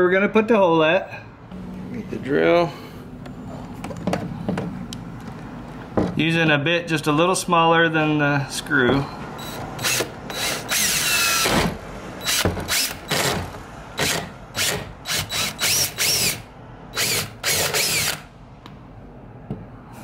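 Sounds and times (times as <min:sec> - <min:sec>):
cordless drill whining: 0:09.4 - 0:13.4, 0:14.0 - 0:18.3.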